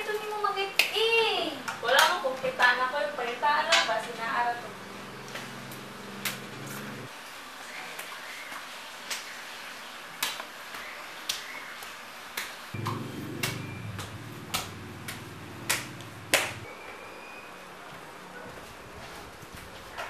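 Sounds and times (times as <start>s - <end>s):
low hum: 12.8s - 16.7s.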